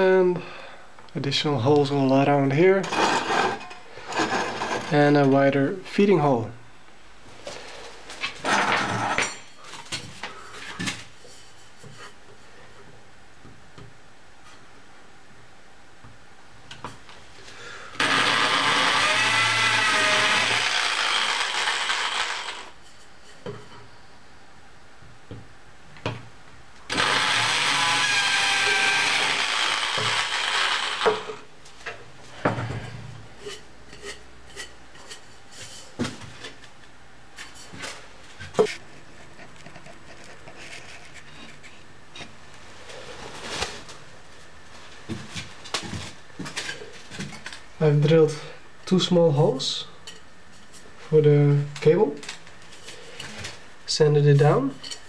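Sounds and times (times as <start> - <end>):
electric drill boring metal: 18.0 - 22.8, 26.9 - 31.4.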